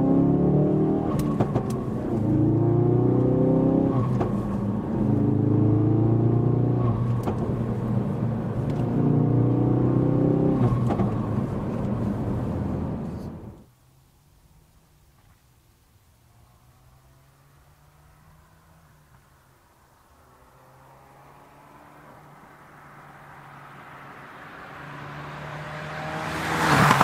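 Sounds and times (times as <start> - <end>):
car engine accelerating: 0.0 - 13.7, 20.2 - 27.0.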